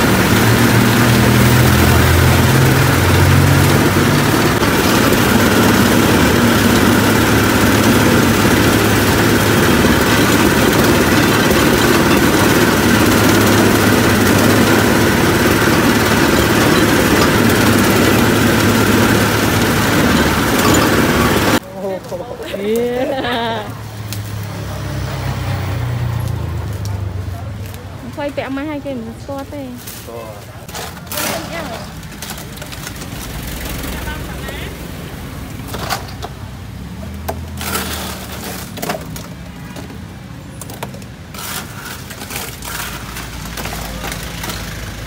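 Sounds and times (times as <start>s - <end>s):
sugarcane juice press motor: 0.0s - 21.6s, 30.5s - 34.7s, 37.1s - 40.0s, 41.0s - 45.0s
cane stalks being crushed: 29.8s - 34.0s, 40.7s - 45.0s.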